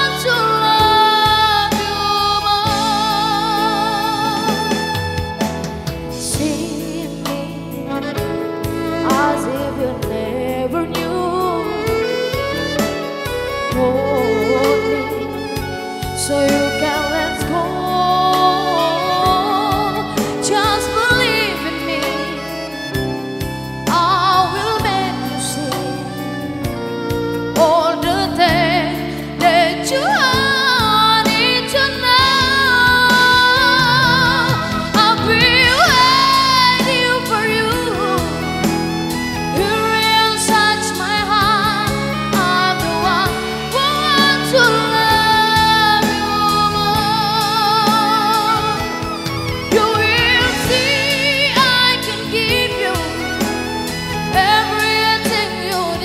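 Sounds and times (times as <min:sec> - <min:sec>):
woman singing with vibrato: 0:00.0 - 0:05.1, 0:06.1 - 0:22.8, 0:23.9 - 0:26.6, 0:27.5 - 0:56.0
violin: 0:00.0 - 0:56.0
low accompaniment: 0:30.4 - 0:55.3.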